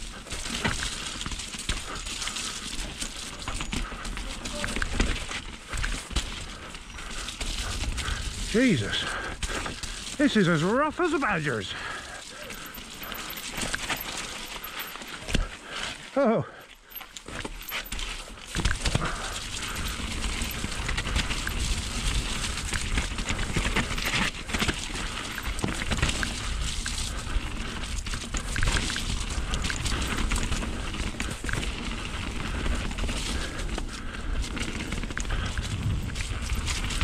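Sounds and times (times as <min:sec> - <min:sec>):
bike tyres rolling over rocks: 0:00.0 - 0:37.0
bike knocks and rattles: 0:00.1 - 0:08.4, 0:16.9 - 0:37.0
wind rumble on microphone: 0:35.1 - 0:37.0.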